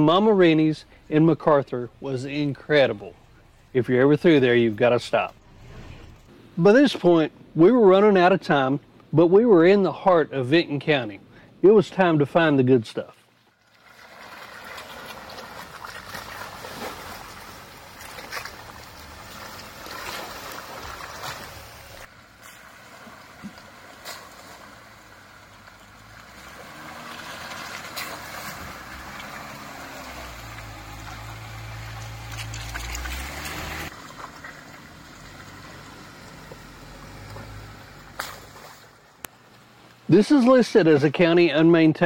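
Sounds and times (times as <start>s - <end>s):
low engine rumble: 0.0s - 6.6s, 15.0s - 40.1s
tyre and road noise: 0.0s - 7.2s, 13.5s - 41.5s.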